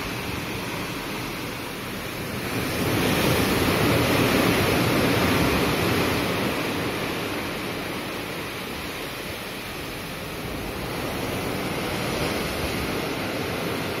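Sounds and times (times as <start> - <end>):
water rushing along ship hull: 0.0 - 14.0
wind buffeting microphone: 0.0 - 14.0.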